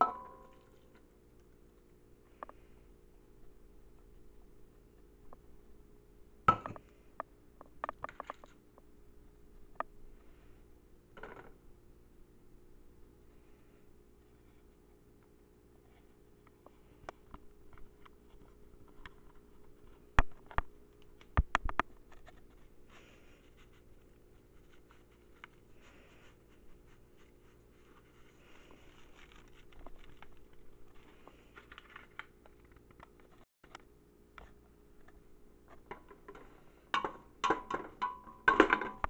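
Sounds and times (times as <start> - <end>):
sharp knocks on a pot: 0.0 - 0.5
powder poured and stirred: 0.0 - 2.6, 21.9 - 33.4.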